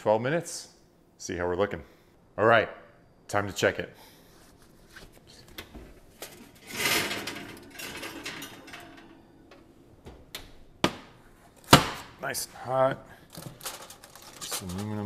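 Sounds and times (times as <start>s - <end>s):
oven door opening with a rush: 6.2s - 9.6s
oven door shutting: 6.3s - 10.6s.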